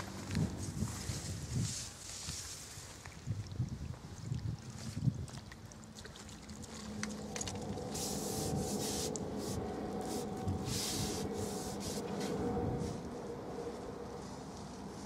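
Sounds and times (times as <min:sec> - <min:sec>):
fish splashing in water: 0:02.0 - 0:12.0.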